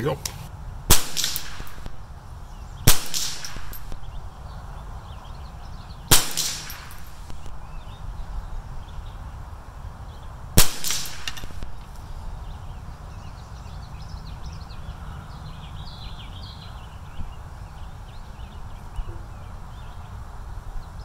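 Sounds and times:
rifle shot crack: 0.9 - 2.1, 2.9 - 4.2, 6.1 - 7.6, 10.6 - 12.0.

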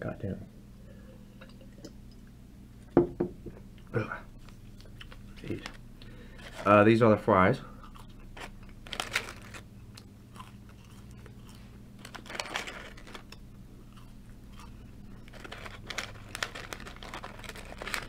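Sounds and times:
person chewing crunchy fries: 4.5 - 6.7, 7.7 - 18.0.

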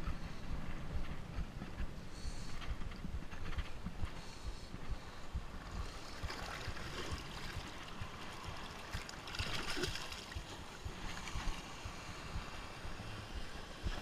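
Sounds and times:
seawater splashing and trickling: 5.9 - 12.2.

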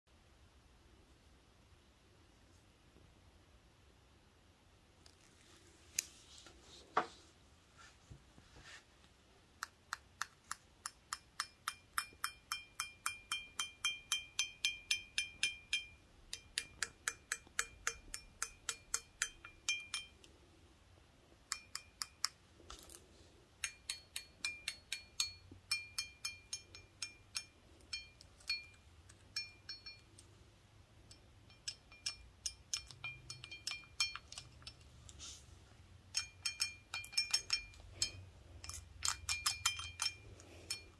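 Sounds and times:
toothpicks tapping glass: 9.9 - 20.2, 21.5 - 22.4, 23.6 - 30.2, 31.0 - 34.9, 36.1 - 40.9.

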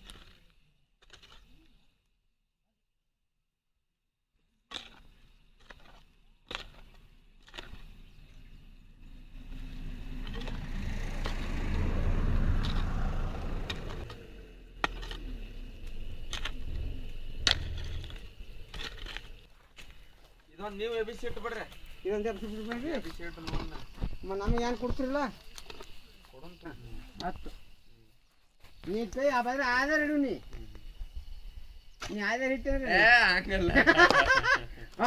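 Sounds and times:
pickaxe striking stony soil: 1.0 - 1.5, 4.7 - 8.0, 10.2 - 11.4, 12.5 - 14.2, 14.8 - 16.7, 17.4 - 20.0
low rushing noise: 9.3 - 14.8.

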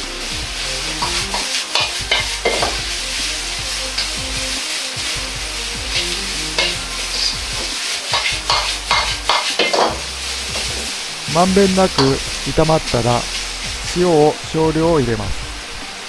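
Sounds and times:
metal ladle scraping wok: 0.0 - 14.3
food sizzling in a wok: 0.0 - 16.0
ladle knocking on wok: 1.0 - 2.9, 5.9 - 10.9.

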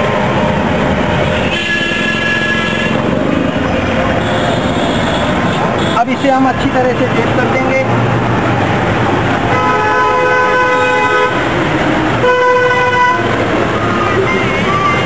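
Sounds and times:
street traffic: 0.0 - 15.0
vehicle horn blasts: 1.4 - 3.0, 9.5 - 11.4, 12.2 - 13.3.

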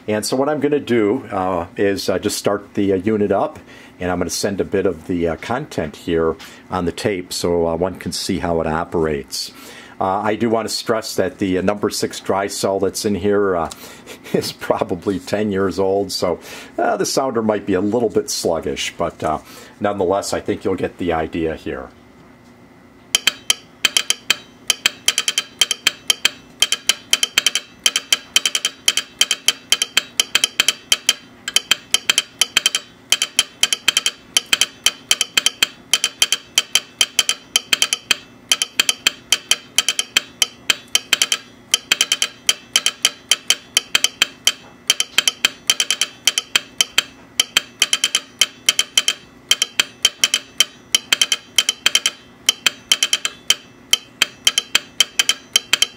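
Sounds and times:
telegraph sounder clicking: 23.1 - 55.9.

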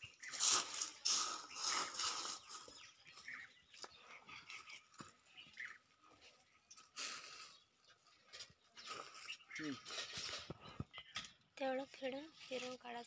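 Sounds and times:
dry leaves rustling and crackling: 0.0 - 3.4.

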